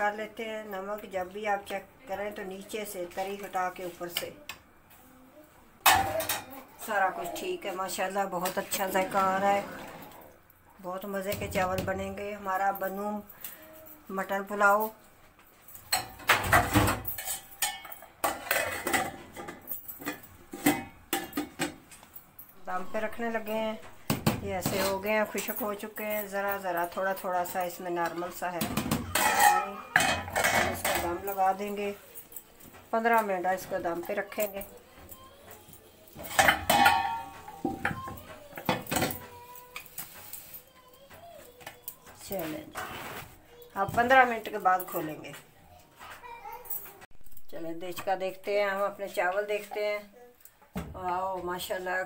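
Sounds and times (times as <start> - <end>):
metal pot lid and spoon clattering: 15.9 - 21.8, 28.7 - 31.2, 36.2 - 38.0.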